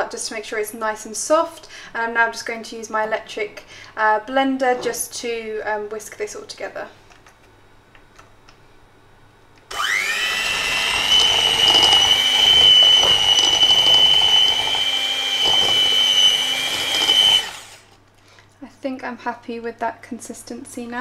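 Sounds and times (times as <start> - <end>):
electric hand mixer whining: 9.7 - 18.0.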